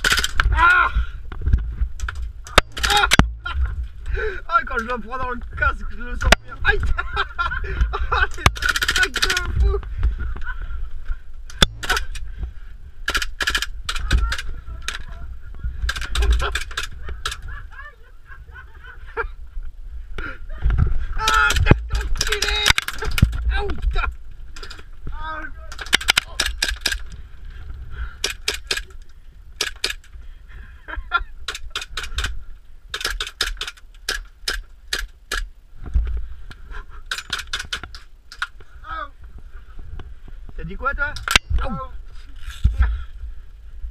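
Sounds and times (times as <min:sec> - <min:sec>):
airsoft guns firing: 0:00.0 - 0:00.4, 0:02.5 - 0:03.4, 0:08.3 - 0:09.6, 0:11.6 - 0:12.3, 0:13.0 - 0:14.5, 0:25.7 - 0:27.1
sharp crack: 0:00.0 - 0:00.7, 0:02.0 - 0:03.7, 0:08.3 - 0:09.6, 0:11.5 - 0:12.3, 0:13.0 - 0:15.1, 0:21.2 - 0:24.9, 0:25.6 - 0:27.1.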